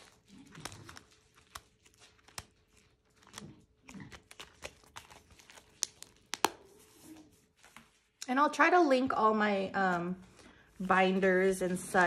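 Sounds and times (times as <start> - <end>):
sharp clicks of plastic envelopes: 0.0 - 6.6
plastic envelopes crinkling: 0.0 - 8.2.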